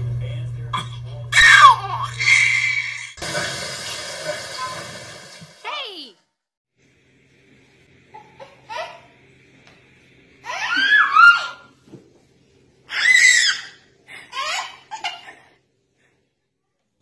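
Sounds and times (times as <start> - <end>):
child laughing and squealing: 1.4 - 3.2, 10.4 - 11.7.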